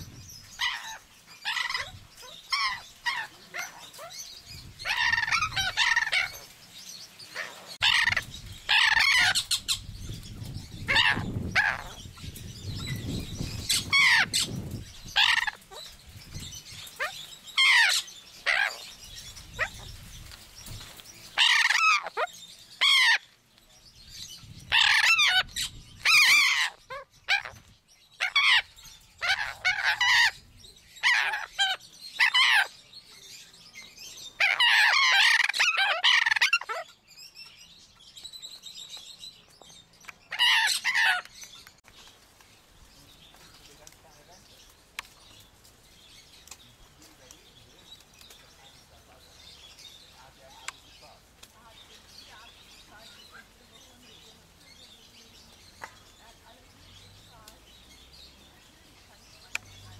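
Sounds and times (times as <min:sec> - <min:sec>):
parrots squawking harshly: 0:00.6 - 0:04.1, 0:04.8 - 0:06.4, 0:07.4 - 0:09.9, 0:10.8 - 0:12.0, 0:13.7 - 0:15.8, 0:17.0 - 0:18.9, 0:21.4 - 0:23.3, 0:24.7 - 0:27.6, 0:28.2 - 0:30.4, 0:31.0 - 0:32.8, 0:34.4 - 0:36.9, 0:40.3 - 0:41.2.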